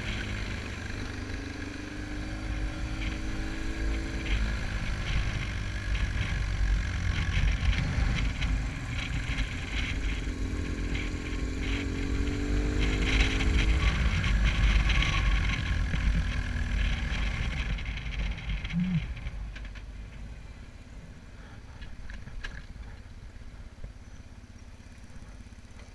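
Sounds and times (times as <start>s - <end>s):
wind buffeting a camera: 0.0s - 20.0s
motorcycle engine running: 0.0s - 25.9s.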